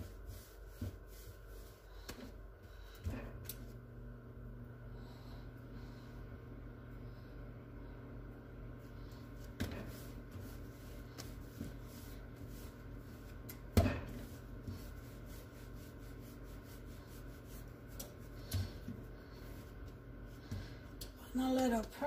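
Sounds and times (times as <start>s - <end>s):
hands rubbing dough: 0.0s - 3.8s, 8.8s - 21.2s
steady low hum: 0.0s - 22.0s.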